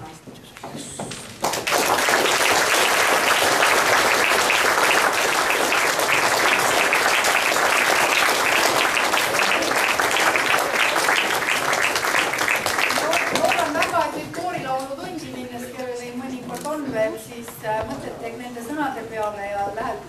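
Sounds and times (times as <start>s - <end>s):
audience applauding: 1.4s - 14.1s.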